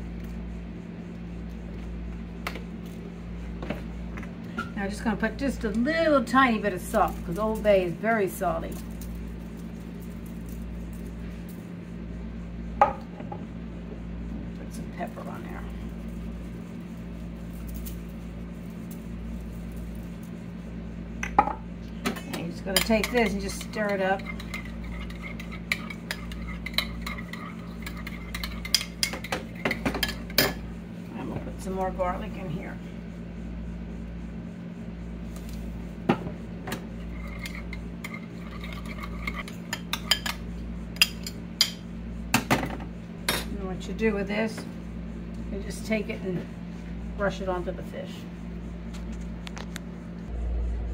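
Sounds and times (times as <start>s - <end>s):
steady low hum: 0.0s - 50.9s
metal spoon clinking in bowl: 22.7s - 30.6s.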